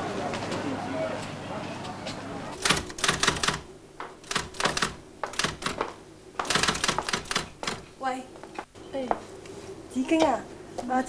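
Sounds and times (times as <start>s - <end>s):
typewriter key strikes: 2.6s - 5.8s, 6.4s - 7.9s.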